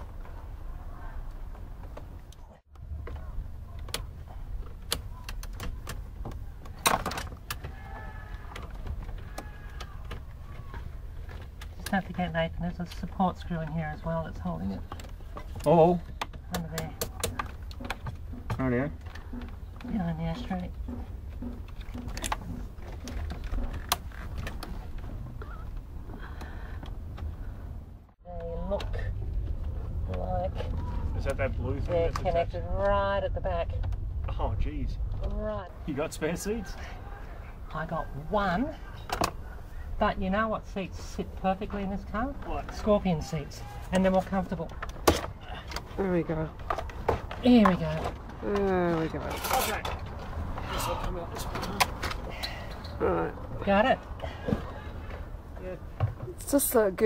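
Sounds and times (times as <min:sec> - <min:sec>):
steady low rumble: 0:17.5 - 0:36.3.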